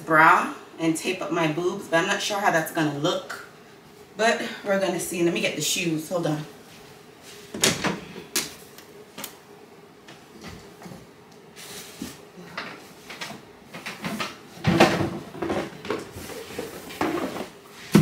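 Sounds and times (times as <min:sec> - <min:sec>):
things being moved and set down: 0:10.2 - 0:18.0.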